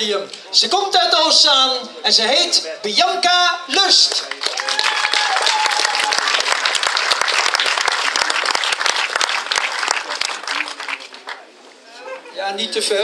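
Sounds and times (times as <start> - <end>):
crowd applauding: 4.0 - 11.5.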